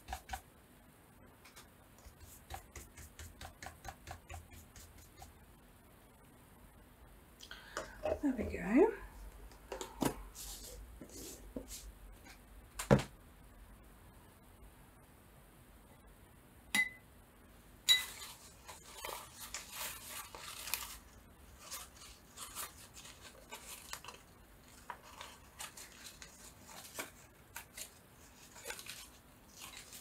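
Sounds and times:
scratching and tapping: 1.4s - 5.4s.

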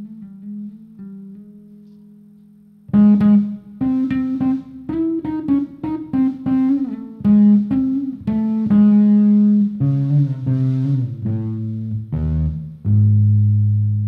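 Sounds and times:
plucked guitar notes: 0.0s - 14.0s
bass line: 2.9s - 14.0s.

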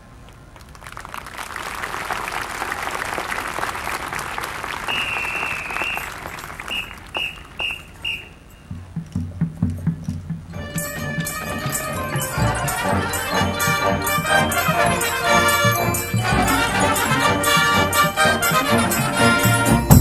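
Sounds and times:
crowd applauding: 0.0s - 8.4s, 10.6s - 20.0s
whistle blasts: 4.8s - 8.8s
drumline beats: 4.8s - 20.0s.

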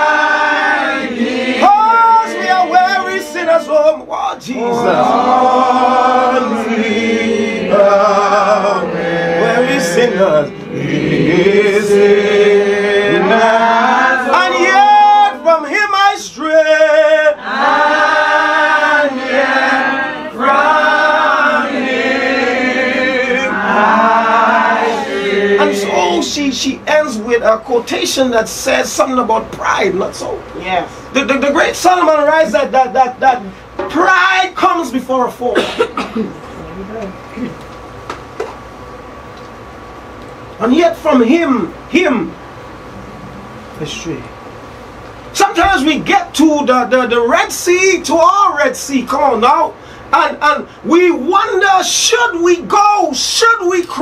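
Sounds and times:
congregation singing a hymn: 0.0s - 26.4s.

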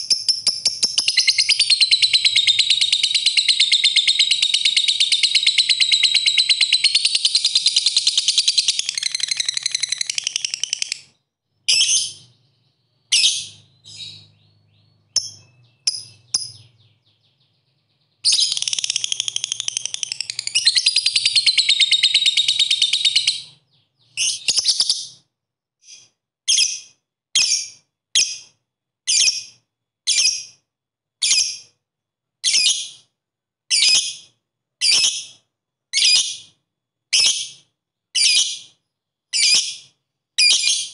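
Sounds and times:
bird chattering trills: 0.0s - 11.1s, 18.3s - 25.0s.

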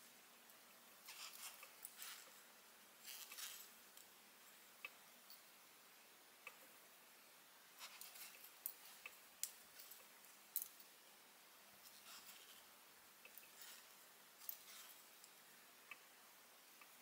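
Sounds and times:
yarn rustling: 1.0s - 4.1s.

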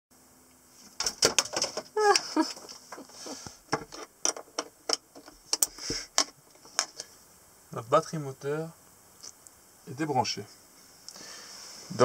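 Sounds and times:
cables clicking and rattling: 1.0s - 7.1s.

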